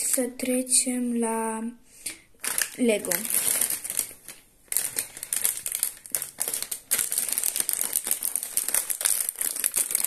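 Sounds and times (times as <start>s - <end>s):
plastic bag crinkling: 2.4s - 10.0s.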